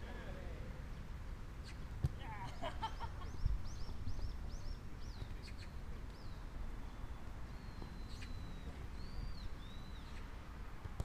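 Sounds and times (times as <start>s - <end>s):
bird singing: 2.9s - 10.3s.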